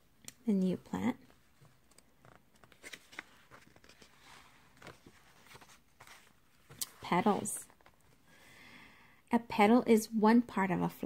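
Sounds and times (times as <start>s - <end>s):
paper rustling: 1.3s - 8.2s.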